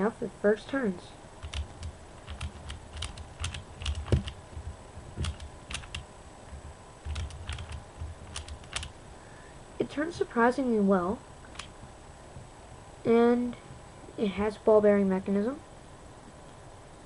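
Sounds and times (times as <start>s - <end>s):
low handling rumbles: 1.3s - 9.1s
plastic puzzle clicking: 5.2s - 6.0s, 7.1s - 8.9s.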